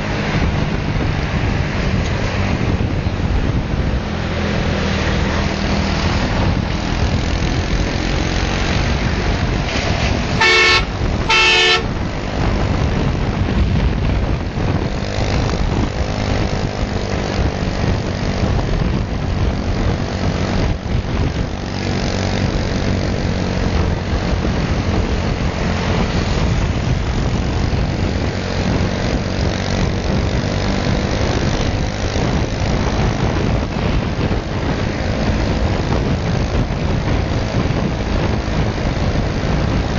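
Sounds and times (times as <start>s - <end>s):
motorcycle engine drone: 0.0s - 39.9s
wind rush: 0.0s - 39.9s
horn toots: 10.3s - 12.0s.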